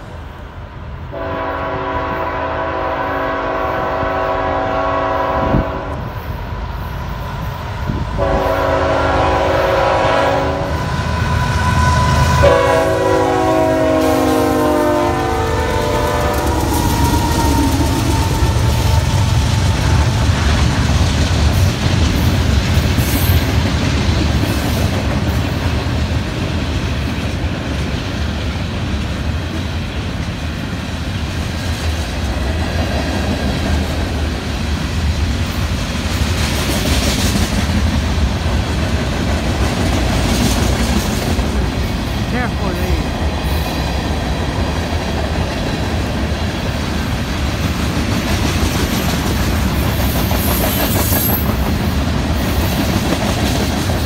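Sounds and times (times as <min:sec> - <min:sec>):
locomotive air horn blasts: 0:01.1 - 0:06.1, 0:08.2 - 0:19.4
train wheels clickety-clack: 0:15.6 - 0:42.3, 0:43.0 - 0:54.0.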